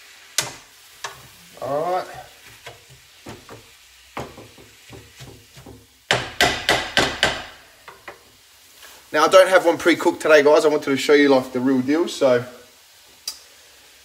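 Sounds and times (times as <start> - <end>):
wooden spatula scraping frying pan: 0.9 - 6.4.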